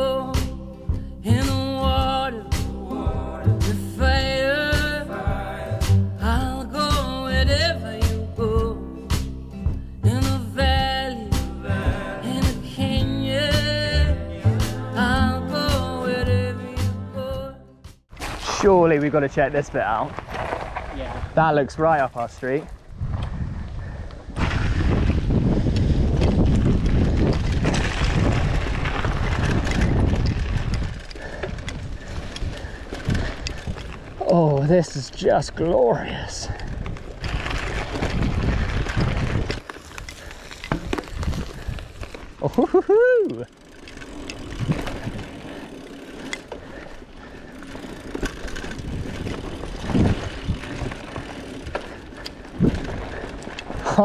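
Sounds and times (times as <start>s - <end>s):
bike clicks and rattles: 18.1s - 35.7s, 36.4s - 54.0s
wind buffeting microphone: 19.6s - 34.2s, 35.4s - 42.4s, 44.4s - 54.0s
tyre and air rushing: 23.0s - 34.2s.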